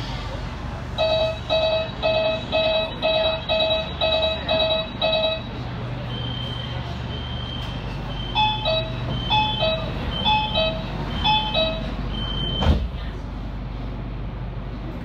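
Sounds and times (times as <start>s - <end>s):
high intermittent beeping: 1.0s - 5.6s, 7.1s - 12.6s.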